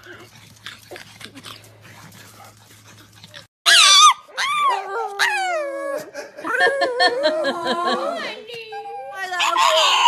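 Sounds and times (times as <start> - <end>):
dog howling: 3.7 - 8.3.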